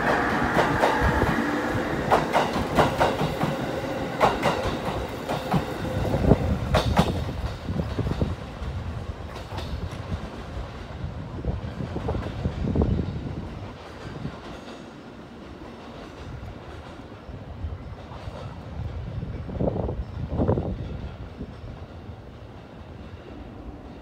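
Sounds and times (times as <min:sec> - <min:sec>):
train wheels clacking over rail joints: 0:00.0 - 0:10.9
low train rumble: 0:00.0 - 0:24.0.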